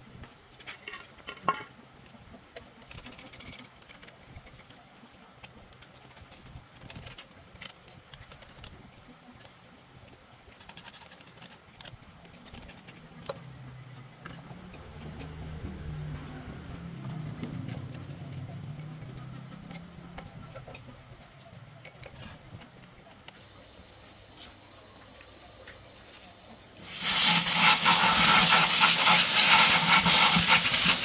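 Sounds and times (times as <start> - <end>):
low hum: 13.0 - 26.6.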